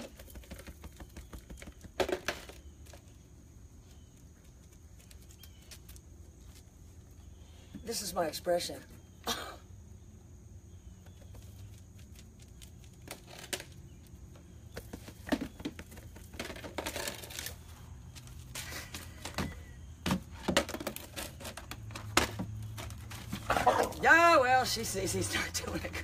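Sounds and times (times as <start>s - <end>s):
rustling and scraping: 3.8s - 8.0s, 10.9s - 24.3s.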